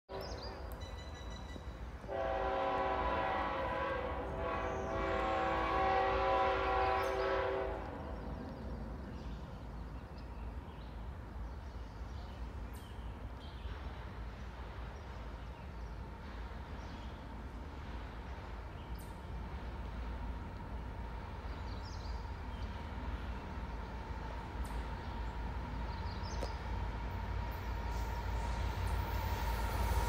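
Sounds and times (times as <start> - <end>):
distant locomotive horn: 0.1 - 8.4.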